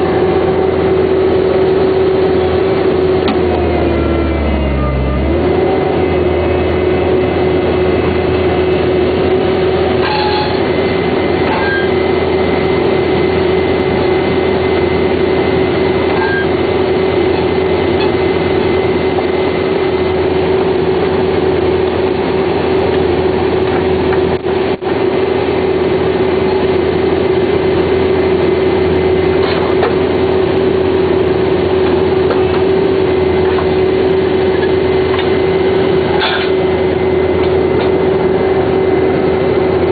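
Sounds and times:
drilling rig engine hum and whine: 0:00.0 - 0:39.9.

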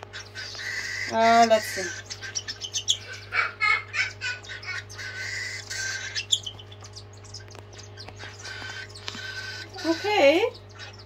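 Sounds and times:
cockatiels chirping: 0:00.0 - 0:11.0
raspy begging call: 0:00.0 - 0:11.0.

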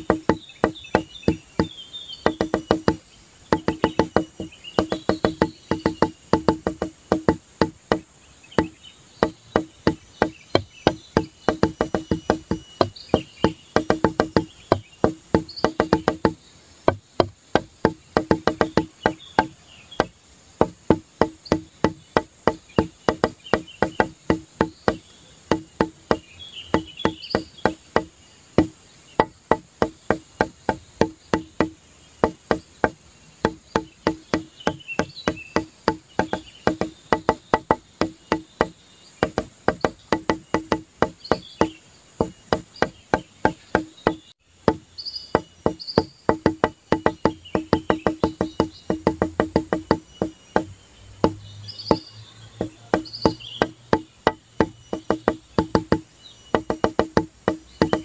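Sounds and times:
marimba-like background music: 0:02.3 - 0:07.4, 0:09.6 - 0:16.3, 0:45.4 - 0:52.0, 0:53.6 - 0:58.0.

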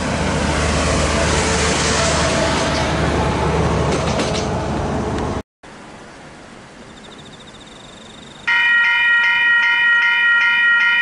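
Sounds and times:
level crossing warning bell: 0:06.9 - 0:11.0.

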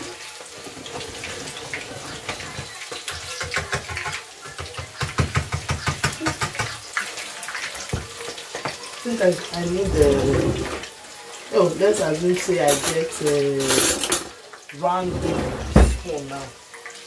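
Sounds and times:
oil sizzling in frying pan: 0:00.0 - 0:15.1, 0:15.7 - 0:17.0.

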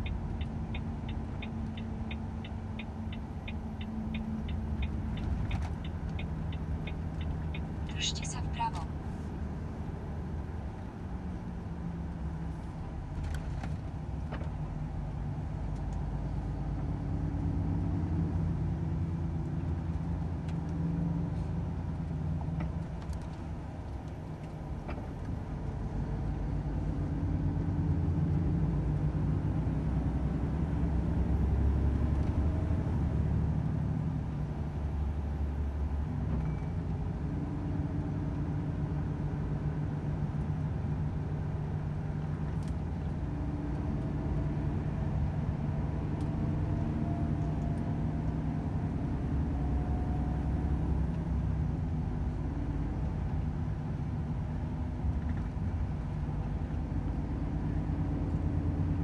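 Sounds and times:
truck diesel engine driving: 0:00.0 - 0:59.0.

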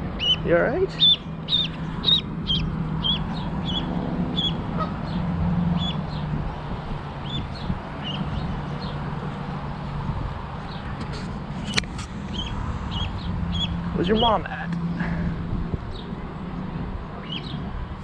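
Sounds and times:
duckling peeping: 0:00.2 - 0:06.3, 0:07.2 - 0:08.4, 0:12.3 - 0:13.8.

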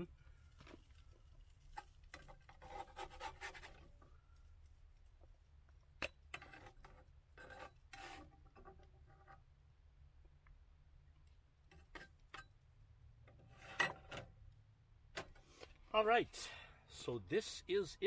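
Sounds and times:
spatula scraping frying pan: 0:02.2 - 0:03.9.

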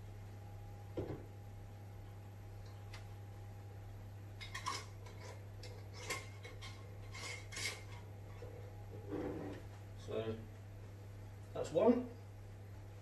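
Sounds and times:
low steady hum: 0:00.0 - 0:13.0
glass jars clinking and scraping: 0:04.4 - 0:08.0.

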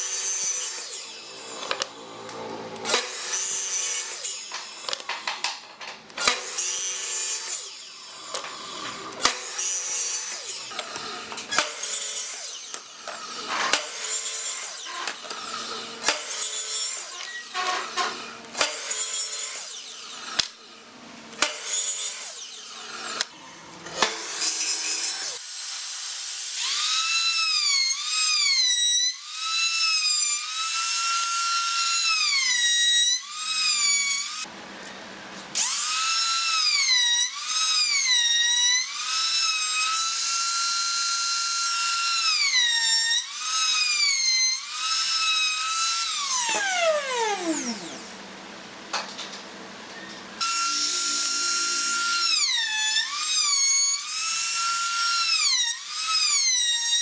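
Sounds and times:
trim router whining: 0:00.0 - 0:18.8, 0:35.6 - 0:48.4, 0:50.4 - 0:57.0
miter saw cutting wood: 0:00.0 - 0:34.5, 0:35.5 - 0:48.3, 0:50.4 - 0:57.0.

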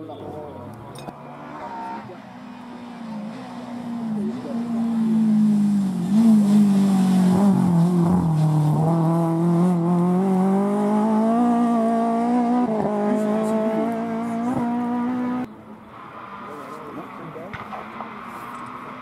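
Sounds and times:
rally car engine at high revs: 0:01.1 - 0:15.5.

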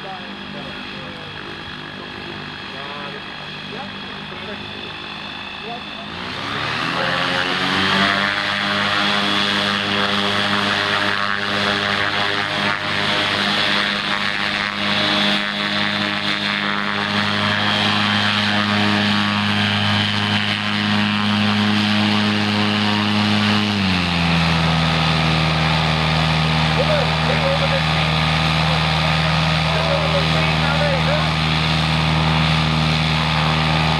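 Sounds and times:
propeller aircraft engine running: 0:00.0 - 0:33.9.

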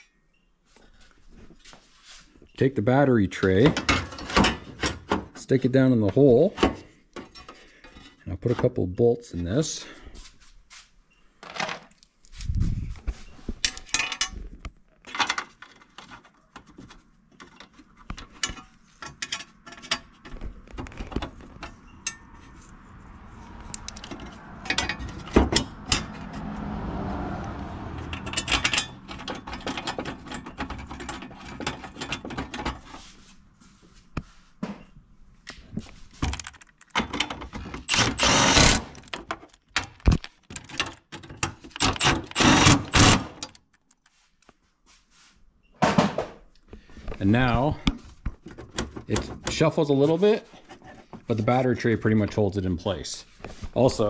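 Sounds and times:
knocks and metal clatter: 0:03.4 - 0:08.8, 0:13.5 - 0:22.7, 0:23.6 - 0:33.1, 0:35.7 - 0:43.6, 0:45.8 - 0:46.5
mechanical noise: 0:37.8 - 0:39.0.

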